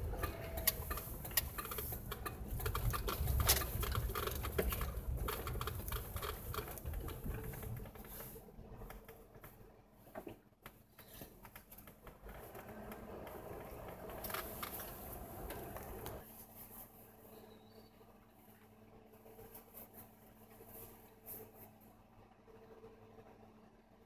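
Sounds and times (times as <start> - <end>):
tyres crunching over snow: 0.0 - 10.4, 11.0 - 17.8.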